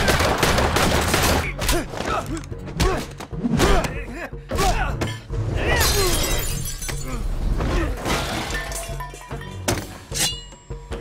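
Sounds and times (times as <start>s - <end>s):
glass shattering: 5.8s - 7.2s, 8.0s - 10.5s.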